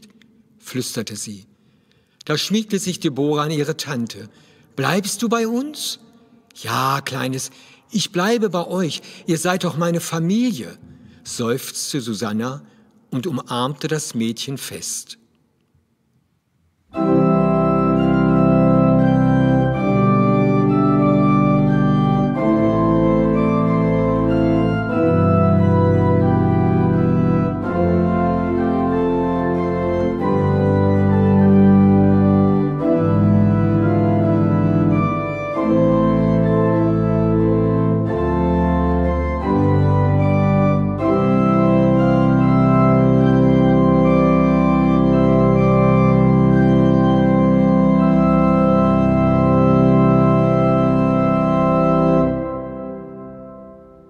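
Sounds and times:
pipe organ playing chords: 0:16.9 - 0:54.0.

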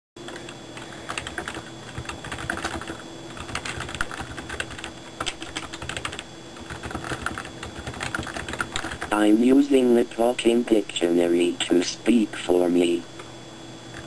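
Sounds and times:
faint steady hum: 0:00.2 - 0:14.0
typing on a keyboard: 0:01.1 - 0:09.1.

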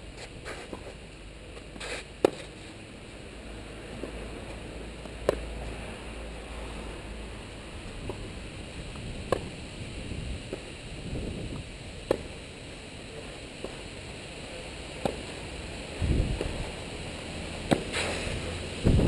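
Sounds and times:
racquet hitting tennis ball: 0:01.6 - 0:02.6, 0:03.8 - 0:04.4, 0:05.0 - 0:05.6, 0:08.0 - 0:08.3, 0:09.2 - 0:09.6, 0:12.0 - 0:12.4, 0:15.0 - 0:15.3, 0:17.6 - 0:18.3
faint distant ball hits: 0:05.0 - 0:05.5, 0:09.3 - 0:09.5, 0:17.7 - 0:18.2.

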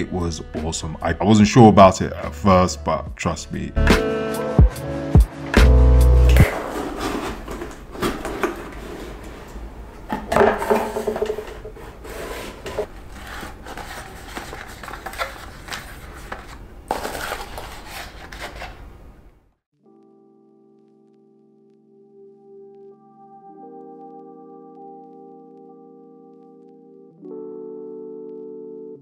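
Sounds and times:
cardboard box scraping and knocks: 0:06.4 - 0:09.5, 0:10.5 - 0:18.8.

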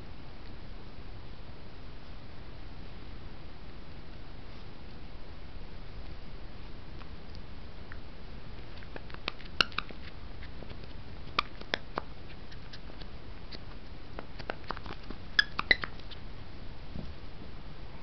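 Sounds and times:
puppy chewing a toy: 0:08.6 - 0:16.2
toy squeaks: 0:09.6 - 0:09.9, 0:15.3 - 0:16.0.

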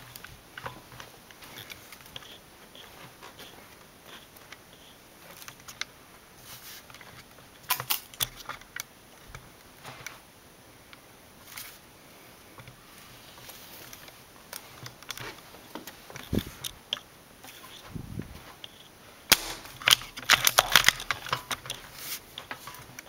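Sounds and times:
camera handling clicks and rattles: 0:00.1 - 0:03.5, 0:06.9 - 0:09.4, 0:13.8 - 0:17.8, 0:18.6 - 0:23.0.

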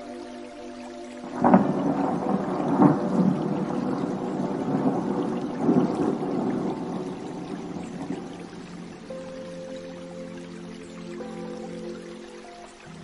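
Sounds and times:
thunder crack and rumble: 0:01.3 - 0:08.8.

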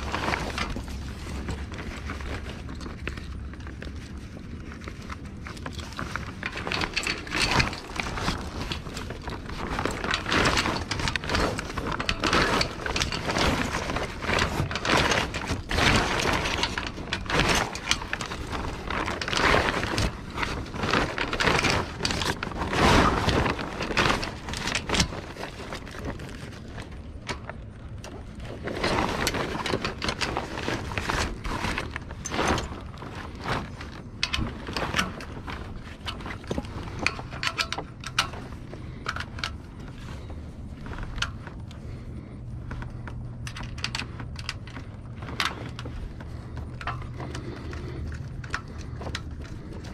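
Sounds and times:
rope and fittings scraping: 0:00.0 - 0:49.9
sailcloth rustling: 0:00.0 - 0:49.9.

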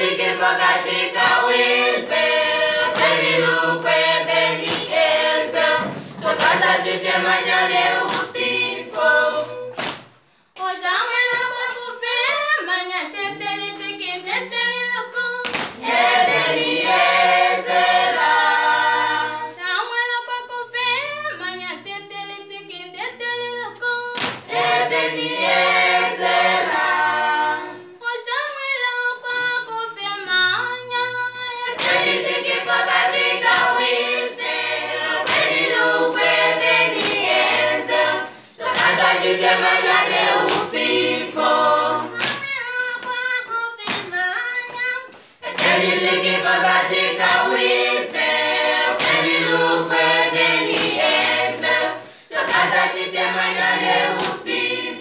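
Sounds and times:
hand claps: 0:00.0 - 0:09.0, 0:09.7 - 0:10.2, 0:15.4 - 0:16.3, 0:24.2 - 0:24.6, 0:31.7 - 0:38.0, 0:38.6 - 0:51.8, 0:52.4 - 0:54.8
group singing unaccompanied: 0:00.0 - 0:55.0.

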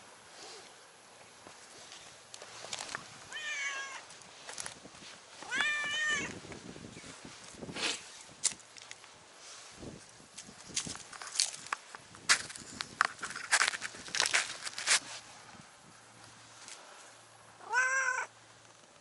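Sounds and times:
light scuffs and clicks: 0:01.4 - 0:03.1, 0:04.0 - 0:15.3
cat meowing: 0:03.3 - 0:04.0, 0:05.4 - 0:06.4, 0:17.6 - 0:18.3.

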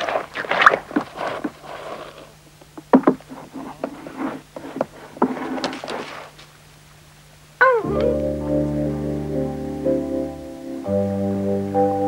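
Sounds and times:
wooden clog knocking and scuffing: 0:02.6 - 0:06.5.

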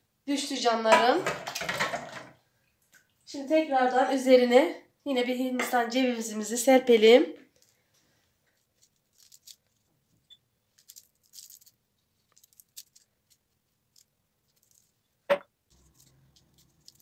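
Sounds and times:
coconut flakes rustling: 0:08.6 - 0:09.8, 0:10.8 - 0:15.0, 0:15.7 - 0:17.0.

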